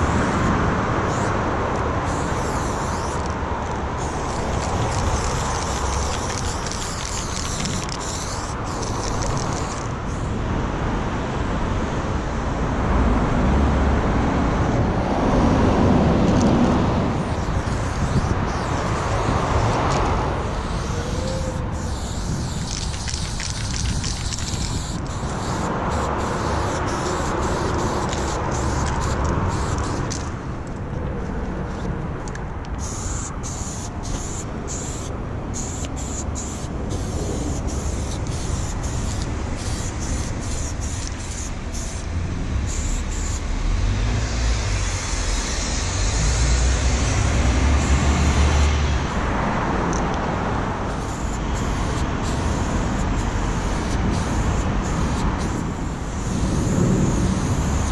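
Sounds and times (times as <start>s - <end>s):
highway traffic passing: 0.0s - 57.9s.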